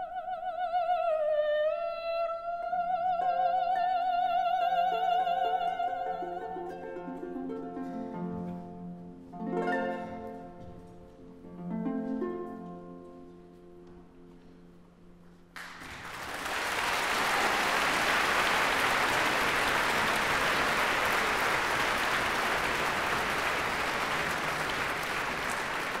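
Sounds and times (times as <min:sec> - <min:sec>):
audience applause: 0:15.6 - 0:26.0.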